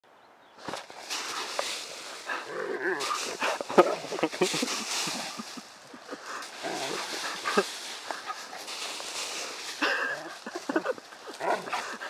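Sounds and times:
dry leaves rustling and crunching: 0:00.6 - 0:12.0
dog vocal sounds: 0:06.0 - 0:12.0.

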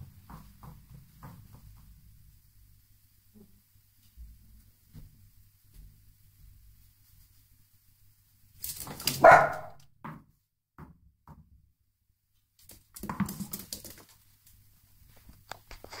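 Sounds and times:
dog barking and yipping: 0:08.9 - 0:09.8.

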